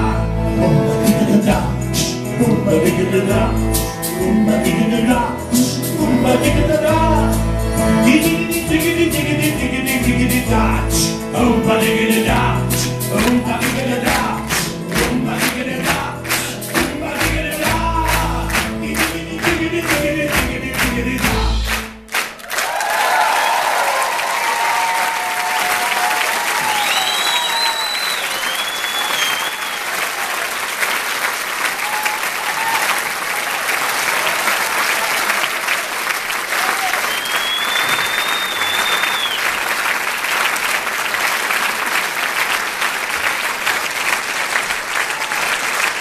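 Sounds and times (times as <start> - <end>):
live band with singers: 0.0 - 22.1
audience applause: 13.1 - 46.0
whistles and cheers: 22.4 - 30.6, 31.6 - 35.7, 36.5 - 39.7.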